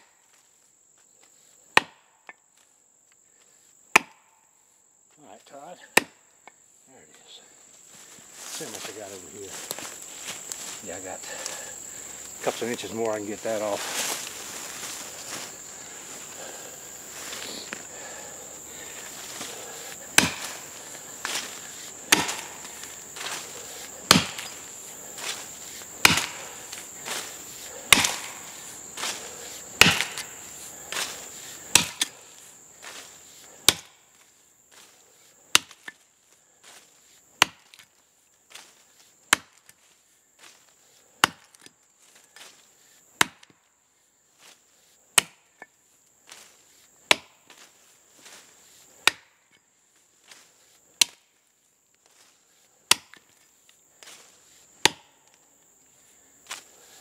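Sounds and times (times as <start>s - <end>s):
axe chopping tree trunk: 1.7s - 2.4s, 3.9s - 4.4s, 5.9s - 6.2s, 19.3s - 25.4s, 26.0s - 31.1s, 31.7s - 32.2s, 33.6s - 34.0s, 35.5s - 36.0s, 37.4s - 37.9s, 39.3s - 39.8s, 41.2s - 41.7s, 43.2s - 43.6s, 45.1s - 45.7s, 47.0s - 47.6s, 49.0s - 49.4s, 51.0s - 51.3s, 52.9s - 53.3s, 54.8s - 55.2s.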